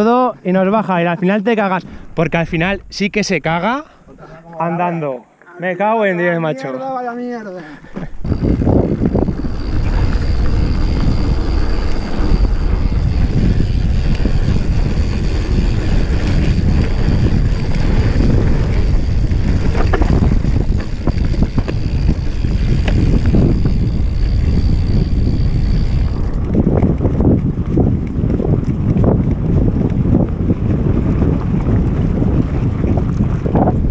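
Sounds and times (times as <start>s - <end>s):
wind buffeting microphone: 0.0s - 4.5s, 7.8s - 33.9s
tyres rumbling on dirt trail: 0.0s - 5.2s, 7.6s - 33.9s
bike clicks and rattles: 7.8s - 33.9s.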